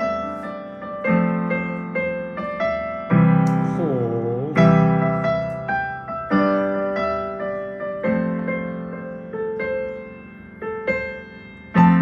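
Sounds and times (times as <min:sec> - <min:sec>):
electronic keyboard piano chords: 0:00.0 - 0:12.0.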